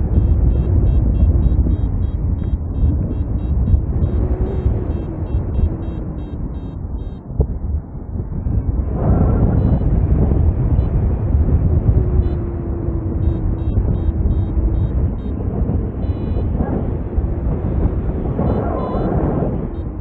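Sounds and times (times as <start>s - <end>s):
wind buffeting microphone: 0.0s - 20.0s
faint high beeps: 0.2s - 7.2s, 9.6s - 9.8s, 12.0s - 17.0s, 17.7s - 19.9s.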